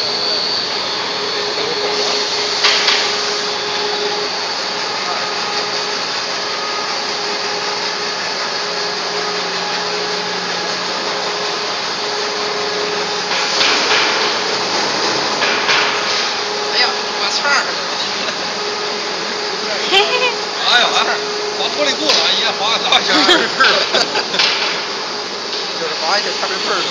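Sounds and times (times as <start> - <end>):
electric motor hum: 0.0 - 26.9
machinery mechanical hiss: 0.0 - 26.9.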